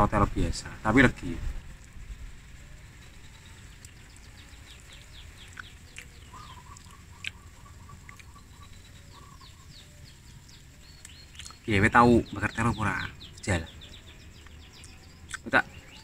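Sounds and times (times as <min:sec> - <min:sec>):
bird chirps and trills: 0:00.0 - 0:16.0
low steady background: 0:00.0 - 0:16.0.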